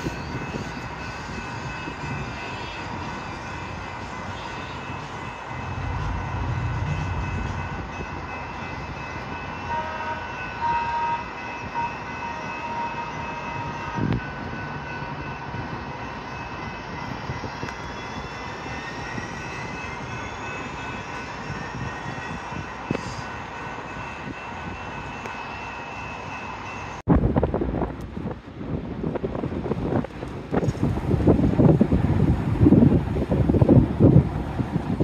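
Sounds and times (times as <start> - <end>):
light-rail train electric hum: 0.0 - 35.0
whine rising in pitch: 5.5 - 9.0.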